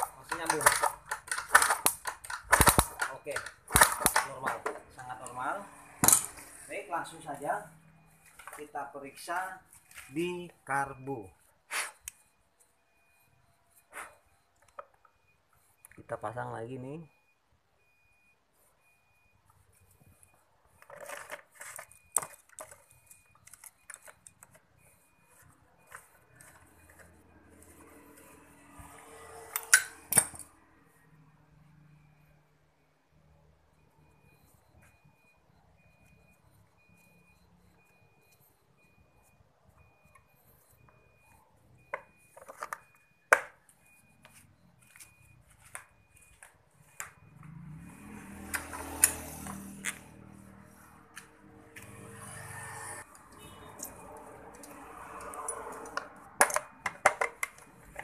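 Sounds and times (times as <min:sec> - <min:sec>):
clicks and knocks of metal parts: 0:00.0 - 0:04.9, 0:29.5 - 0:30.5, 0:53.8 - 0:58.0
hand tools clinking and scraping: 0:00.0 - 0:04.9.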